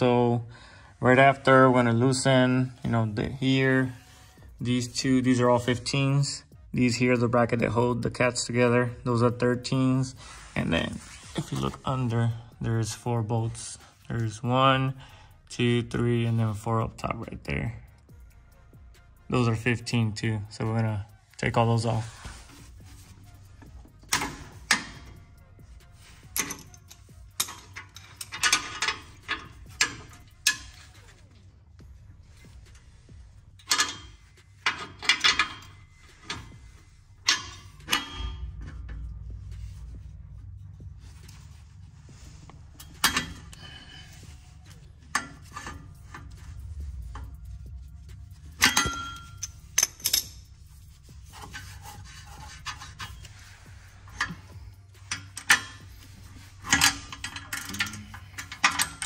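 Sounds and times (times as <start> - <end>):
low hum: 17.8 - 59.0
metal clanks: 21.5 - 41.6, 42.5 - 59.0
ratcheting wrench clicks: 54.1 - 59.0.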